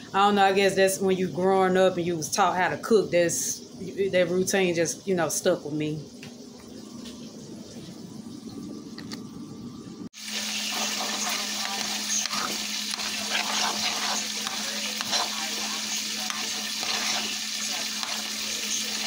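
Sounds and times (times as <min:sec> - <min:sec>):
food sizzling in a pot: 0:10.1 - 0:19.0
metal spoon stirring rice: 0:10.7 - 0:19.0.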